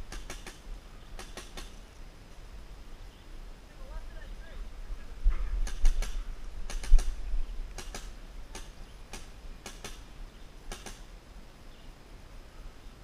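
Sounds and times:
low rumbles of wind or handling: 0.0 - 13.0
paintball gun firing clicks: 0.1 - 0.6, 1.2 - 1.8, 5.6 - 10.1, 10.7 - 11.1.

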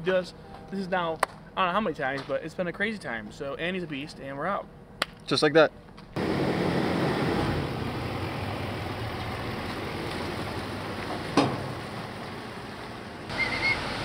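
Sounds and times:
diesel truck engine pulling away: 6.2 - 14.0.

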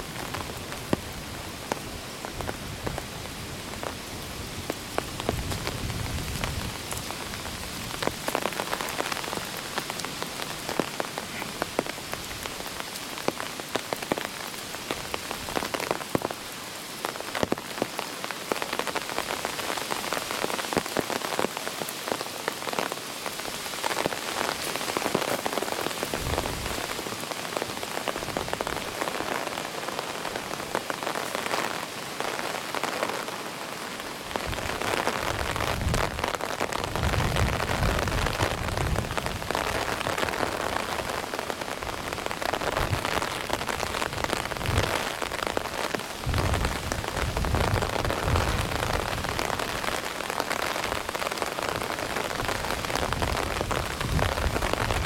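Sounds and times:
heavy rain falling: 0.0 - 55.0
wind gusting on microphone: 26.0 - 27.0, 34.3 - 41.0, 41.7 - 50.0, 50.8 - 55.0.

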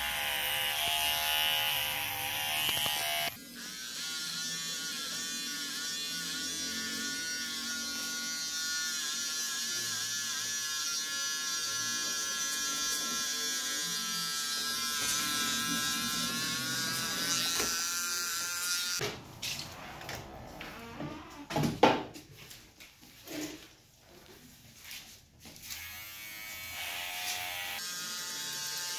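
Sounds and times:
electric hair clippers running: 0.0 - 19.0, 25.6 - 28.9.

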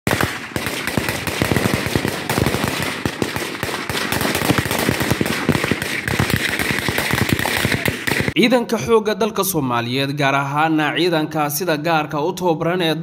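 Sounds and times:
automatic gunfire: 0.1 - 8.4.

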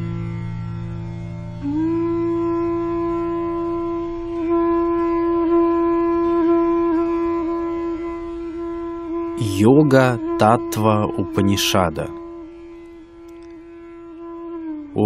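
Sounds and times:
low drone: 0.0 - 6.4
wind instrument steady note: 1.6 - 15.0.

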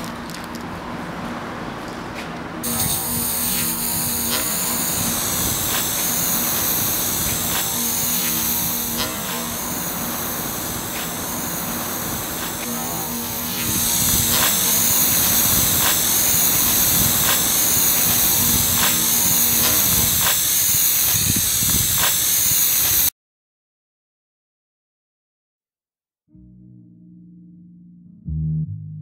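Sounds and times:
spray-paint can hissing: 2.6 - 23.1.

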